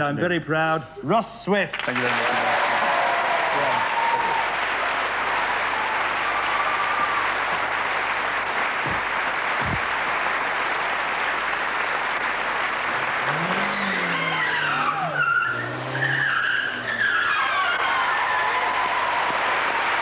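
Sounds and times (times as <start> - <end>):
studio audience applauding: 1.7 - 20.0
car engine revving: 7.6 - 18.3
tyres squealing: 13.3 - 18.6.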